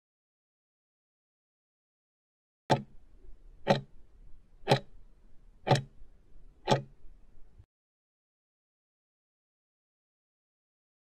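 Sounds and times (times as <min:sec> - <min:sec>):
timer clock ticking: 0:02.7 - 0:03.0, 0:03.6 - 0:03.9, 0:04.6 - 0:05.0, 0:05.6 - 0:06.0, 0:06.6 - 0:07.0.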